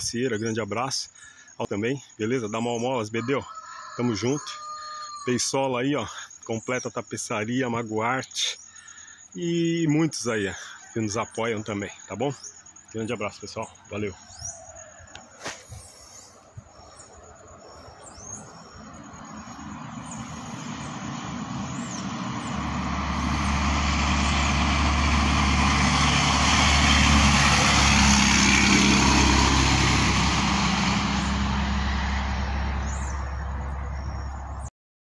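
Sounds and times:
truck passing by: 9.2s - 34.7s.

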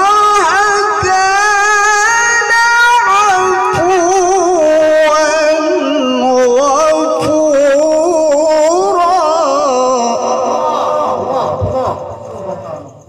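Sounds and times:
man reciting in sung style: 0.0s - 13.0s.

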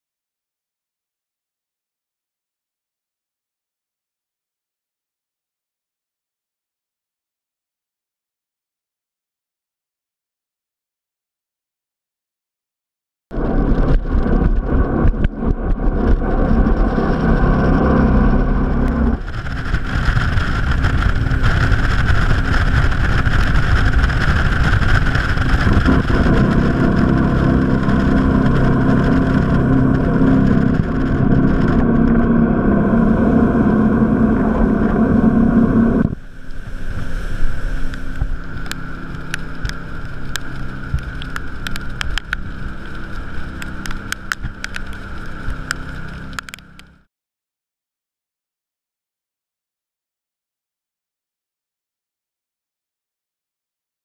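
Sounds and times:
boat engine drone: 13.3s - 47.1s
rushing water: 15.8s - 46.9s.

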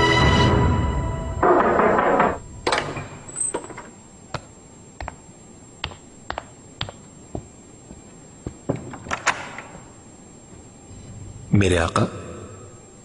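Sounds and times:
sharp taps and clicks: 5.8s - 7.0s.

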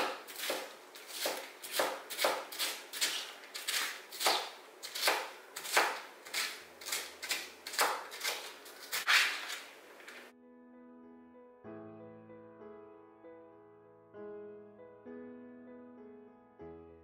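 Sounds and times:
knife chopping on board: 0.0s - 9.3s.

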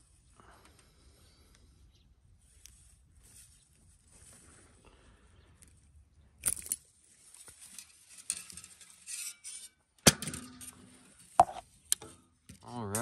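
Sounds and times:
fishing gear clinks and knocks: 6.4s - 7.0s.

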